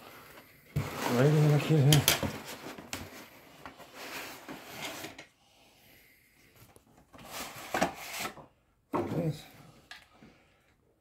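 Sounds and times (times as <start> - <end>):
soft rubbing in foam packing: 0.5 - 5.1.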